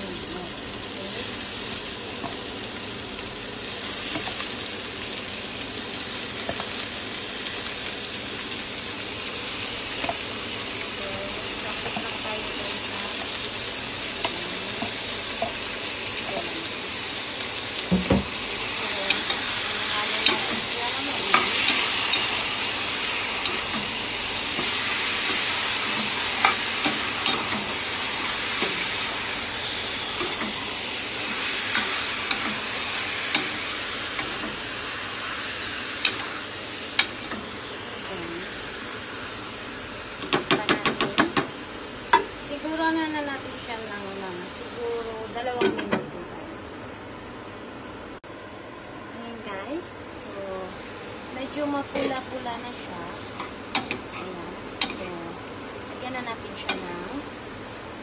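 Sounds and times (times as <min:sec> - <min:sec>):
chicken sizzling in oil: 0:00.0 - 0:45.7
knocks and clicks in pot: 0:40.2 - 0:41.5.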